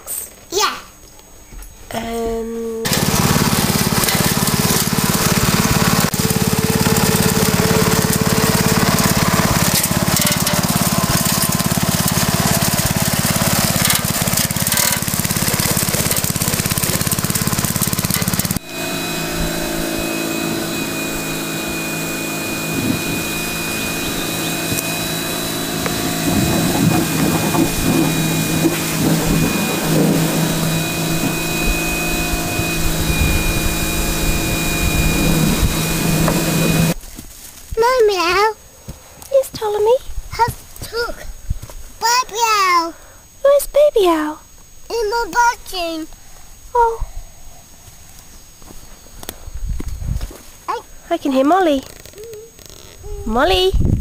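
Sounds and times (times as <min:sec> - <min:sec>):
machine drone with high whine: 0:01.9 - 0:37.0
lawn mower engine running: 0:02.8 - 0:38.1, 0:51.1 - 0:54.0.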